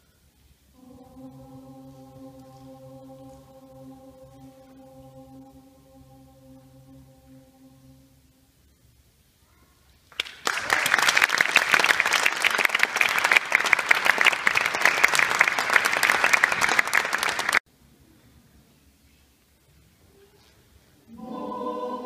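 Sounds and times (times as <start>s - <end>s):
audience applauding: 10.1s - 17.6s.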